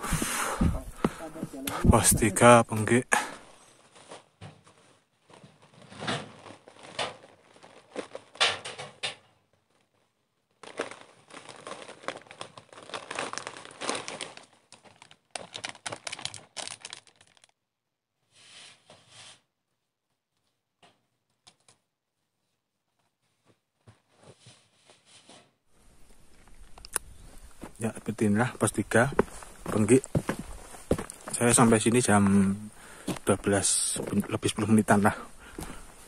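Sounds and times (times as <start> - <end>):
footsteps crunching on rocky trail: 0.0 - 2.5, 26.0 - 36.0.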